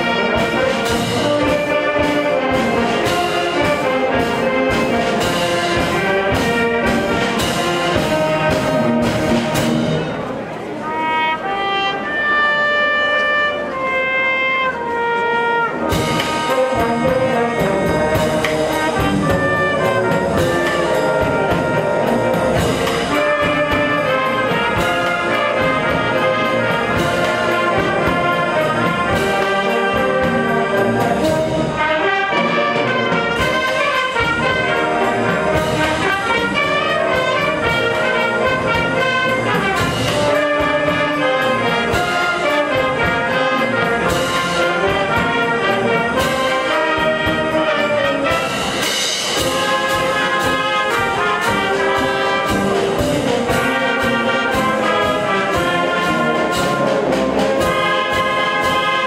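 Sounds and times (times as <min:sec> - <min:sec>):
wind band playing: 0:00.0 - 0:59.0
percussion beat: 0:15.8 - 0:32.3, 0:33.0 - 0:59.0.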